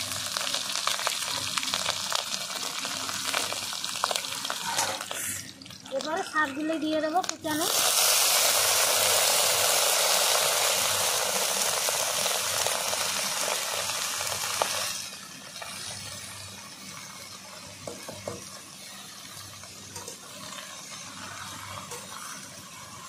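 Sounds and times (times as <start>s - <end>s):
leaves sizzling in hot oil: 0.0s - 23.0s.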